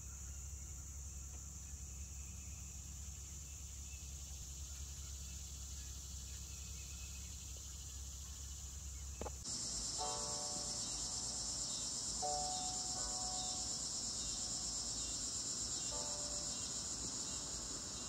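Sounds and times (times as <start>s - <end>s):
insect chorus: 0.0s - 18.0s
soft music notes: 9.6s - 18.0s.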